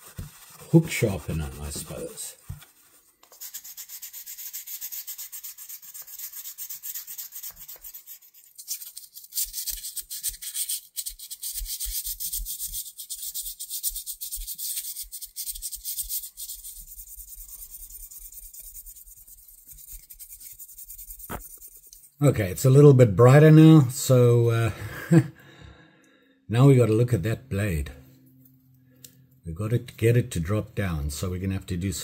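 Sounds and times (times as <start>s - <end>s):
sandpaper rubbing on metal: 0.0s - 22.2s.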